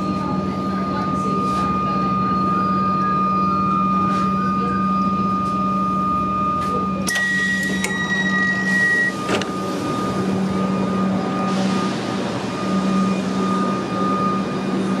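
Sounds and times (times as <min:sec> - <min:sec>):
train electric hum and whine: 0:00.0 - 0:15.0
steady high beep: 0:01.2 - 0:15.0
train door clunk: 0:07.0 - 0:09.7.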